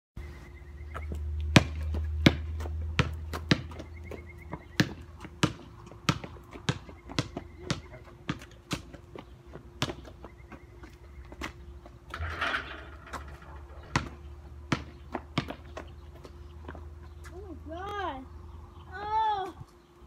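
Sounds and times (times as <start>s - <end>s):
basketball bouncing: 0.9s - 10.3s, 12.2s - 16.8s.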